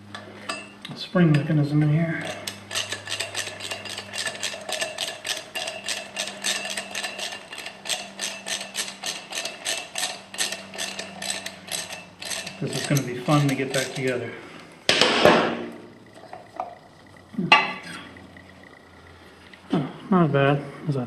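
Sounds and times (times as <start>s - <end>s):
socket ratchet clicking: 2.2s - 14.2s.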